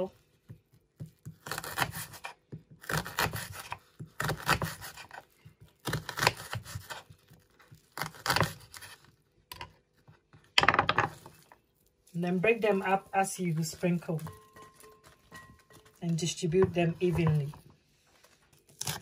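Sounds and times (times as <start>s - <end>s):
knife dicing onion on wooden board: 0.4s - 9.6s.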